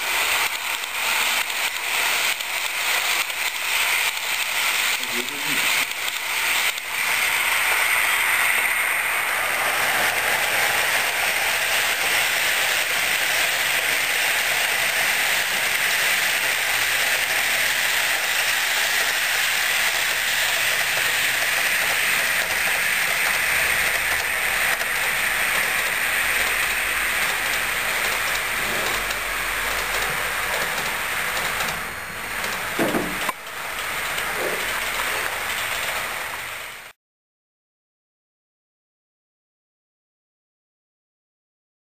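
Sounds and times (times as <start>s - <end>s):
model train wheels whirring: 0.0s - 37.0s.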